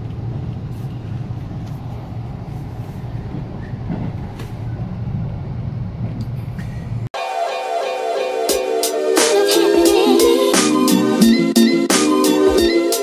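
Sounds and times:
train rumble inside carriage: 0.0s - 7.1s
music: 7.2s - 13.0s.

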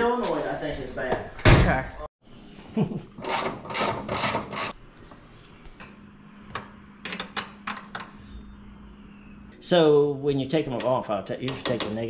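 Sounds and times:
tool scraping: 3.1s - 4.8s.

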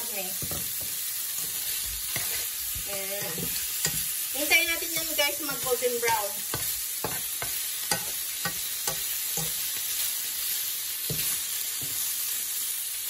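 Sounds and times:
meatballs sizzling in frying pan: 0.0s - 13.0s
metal spoon tapping pan: 0.4s - 4.1s, 4.7s - 9.6s.

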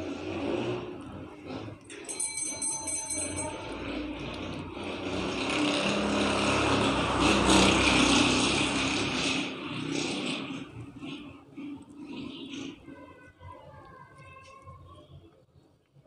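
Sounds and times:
brief light jingle: 1.9s - 4.5s.

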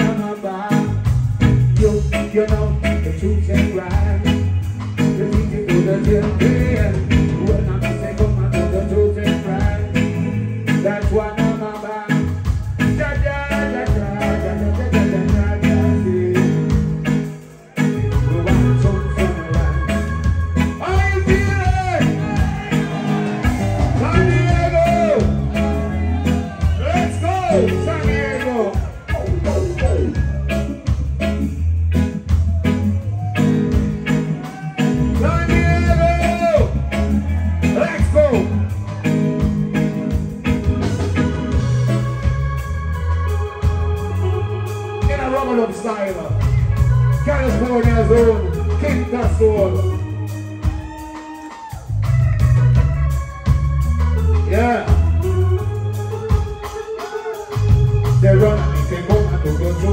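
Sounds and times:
person singing: 0.0s - 17.0s, 17.7s - 31.3s
bass line: 0.0s - 59.9s
offbeat guitar chops: 0.0s - 59.9s
reggae band playing: 0.0s - 59.9s.

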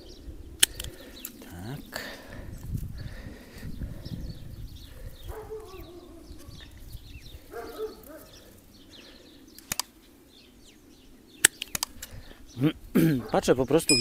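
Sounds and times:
lower bird calls: 0.0s - 14.0s
small birds chirping: 0.0s - 14.0s
pruning shears snipping: 9.6s - 10.0s, 11.4s - 12.1s.

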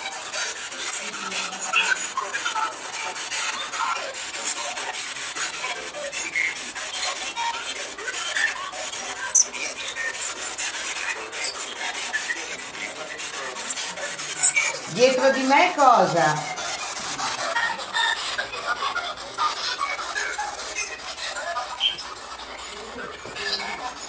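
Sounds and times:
quick static crackles: 4.9s - 24.0s
hissing radio static: 14.7s - 18.6s.

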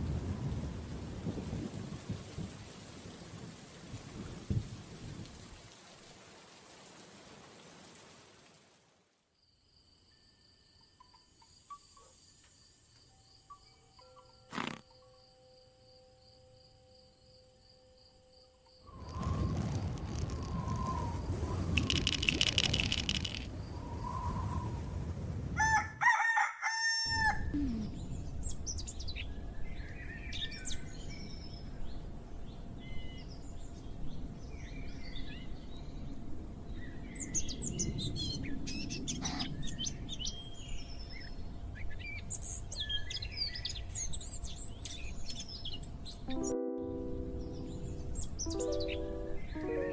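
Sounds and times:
cricket trill: 9.4s - 24.2s
rooster crowing: 25.6s - 27.5s
small birds chirping: 27.5s - 32.1s.

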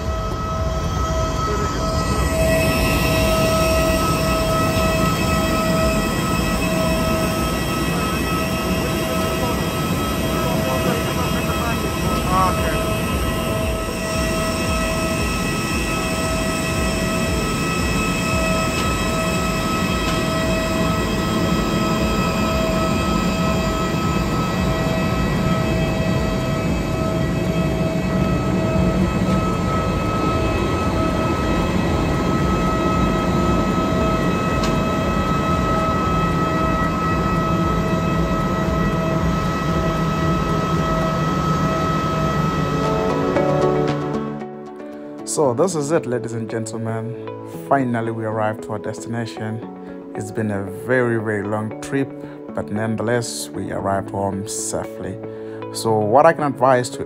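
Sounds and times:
high tones falling in pitch: 0.0s - 44.9s
jet turbine whine: 0.0s - 57.0s.

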